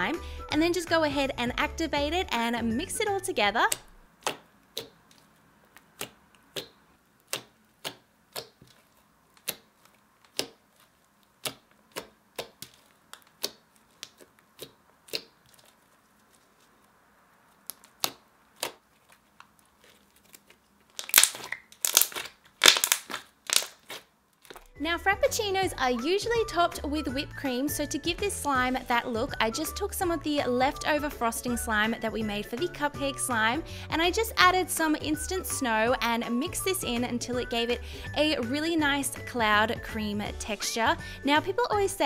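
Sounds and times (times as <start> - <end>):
slime clicking under fingers: 3.7 - 8.8, 9.4 - 10.6, 11.3 - 15.4.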